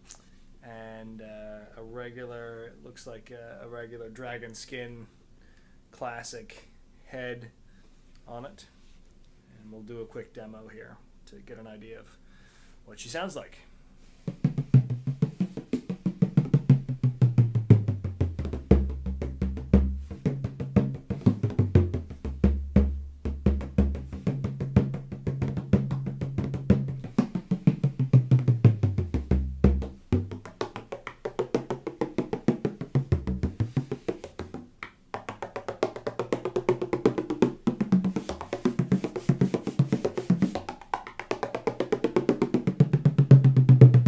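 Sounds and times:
bodhran drumming: 14.3s - 44.0s.

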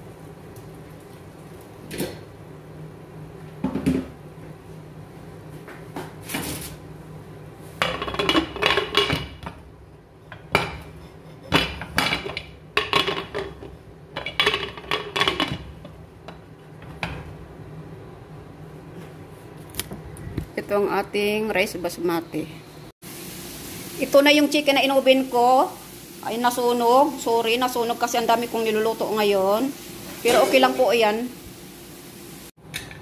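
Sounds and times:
metal lid clanks and scrapes: 30.2s - 30.8s.

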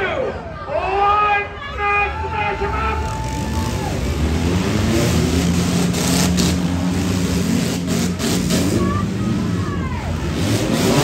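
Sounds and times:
car engines revving hard: 2.5s - 11.0s.

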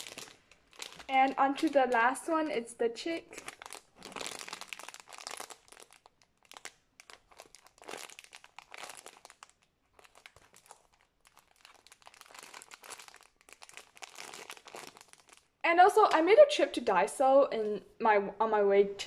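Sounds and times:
plastic bag crinkling: 0.0s - 2.5s, 3.3s - 15.6s.

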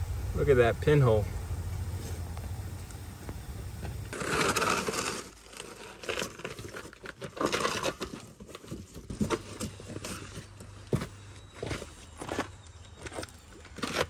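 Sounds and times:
low steady hum: 0.0s - 6.8s
plastic and cardboard crinkling: 4.1s - 14.0s.

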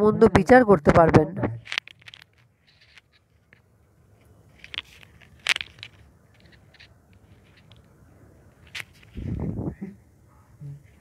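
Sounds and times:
faint low hum: 2.4s - 11.0s.

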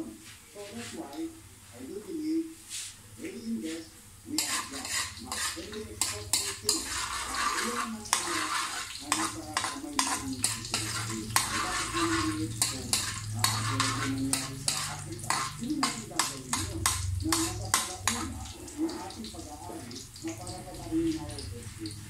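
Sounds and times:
food sizzling in hot oil: 4.1s - 22.0s
metal spoon scraping a wok: 4.4s - 18.3s.

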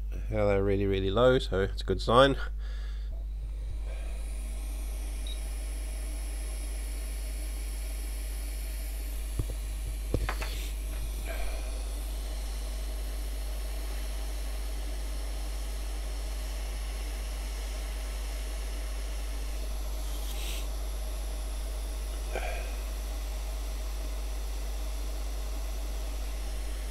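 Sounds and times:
low hum: 0.0s - 26.9s
hot air blower hissing: 2.6s - 26.9s.

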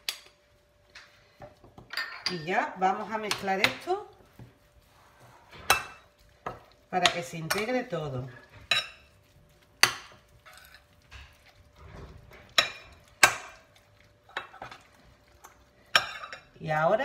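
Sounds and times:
spoon stirring wet mix: 0.0s - 17.0s
spoon clinking glass bowl: 1.9s - 2.5s, 15.9s - 16.5s.

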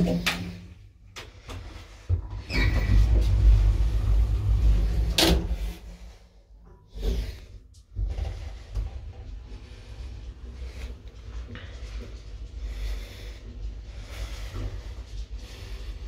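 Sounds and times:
elevator low rumble: 1.3s - 16.0s
elevator doors and gear clunking: 2.2s - 6.0s.

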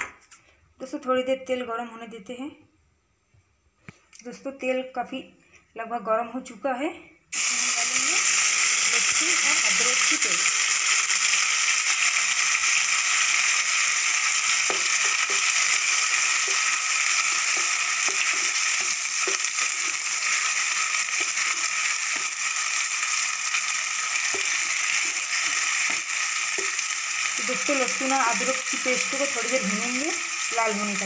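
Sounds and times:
paste sizzling in hot oil: 7.3s - 31.0s
spatula scraping and tapping pan: 14.6s - 22.4s, 24.2s - 26.8s.

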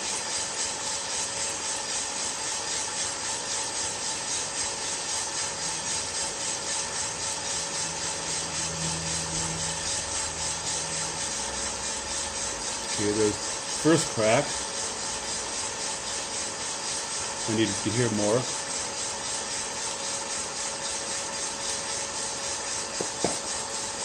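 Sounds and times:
roaster fan: 0.0s - 24.0s
coffee beans tumbling in drum: 10.9s - 24.0s.

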